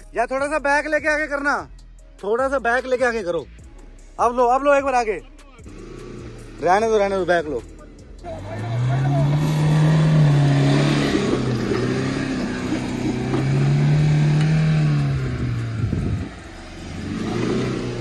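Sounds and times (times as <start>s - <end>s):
car engine revving hard: 5.7s - 7.3s, 8.2s - 18.0s.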